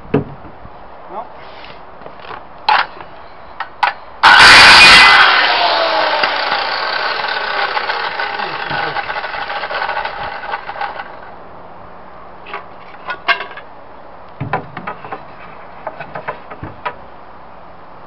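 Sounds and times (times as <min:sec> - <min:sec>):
power saw cutting wood: 0:04.2 - 0:11.4
wooden knocks and clacks: 0:14.4 - 0:17.0.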